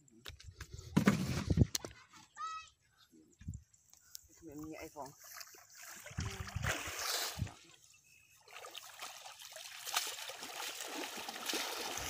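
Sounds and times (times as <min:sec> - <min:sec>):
water splashing: 0:05.0 - 0:07.7, 0:08.4 - 0:12.0
water trickling off net: 0:08.5 - 0:12.0.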